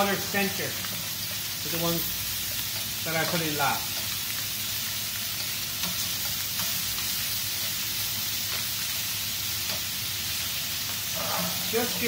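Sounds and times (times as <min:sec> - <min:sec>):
chicken sizzling in frying pan: 0:00.0 - 0:12.0.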